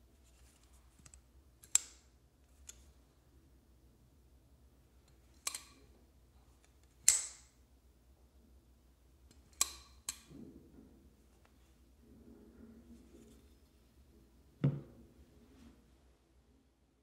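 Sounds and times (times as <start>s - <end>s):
folding knife blade clicking: 5.4s - 5.8s.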